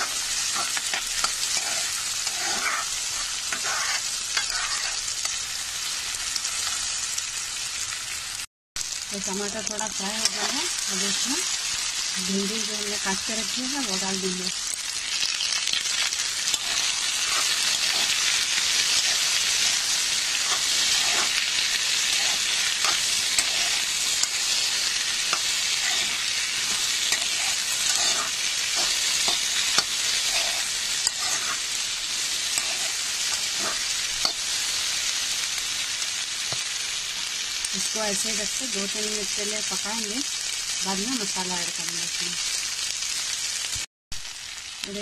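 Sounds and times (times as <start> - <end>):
metal spoon scraping pan: 0.0 - 5.4, 10.2 - 11.2, 16.5 - 34.6
vegetables sizzling in oil: 0.0 - 45.0.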